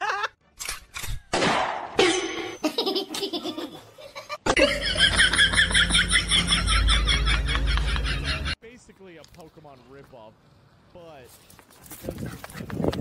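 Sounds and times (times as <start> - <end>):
person laughing: 0.0 - 0.4, 2.6 - 8.6.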